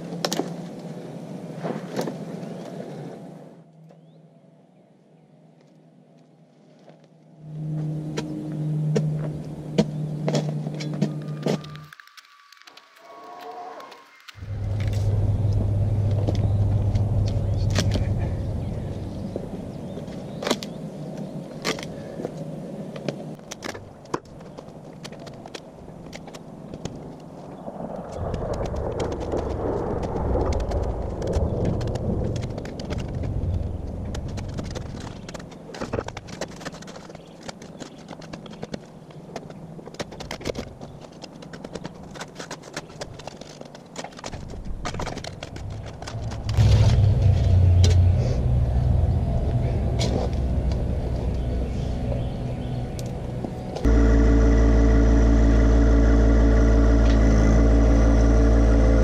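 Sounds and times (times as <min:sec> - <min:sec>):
tractor diesel engine running: 0:07.4 - 0:12.0, 0:14.4 - 0:20.4, 0:29.6 - 0:36.8, 0:44.9 - 0:59.0.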